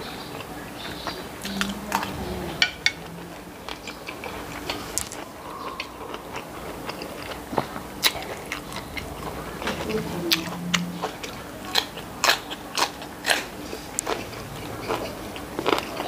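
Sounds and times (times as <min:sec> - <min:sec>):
close chewing: 0:00.0 - 0:16.0
low hum: 0:00.8 - 0:12.2.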